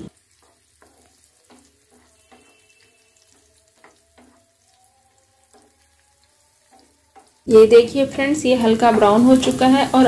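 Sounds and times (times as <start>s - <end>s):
light sizzle: 0.0s - 10.0s
spatula scraping a pan: 0.1s - 7.4s.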